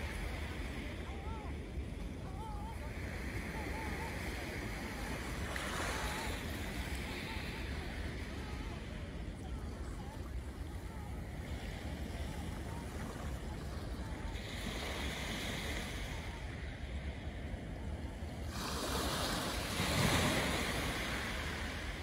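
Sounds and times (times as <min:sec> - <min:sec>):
small waves washing onto beach: 0:00.0 - 0:22.0.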